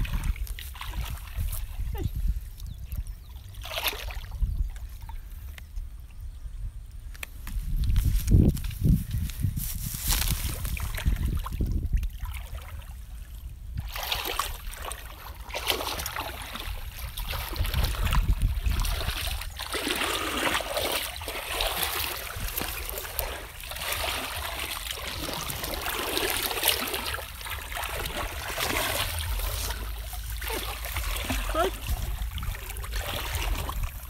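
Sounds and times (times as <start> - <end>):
hands splashing in muddy water: 13.8 - 34.0.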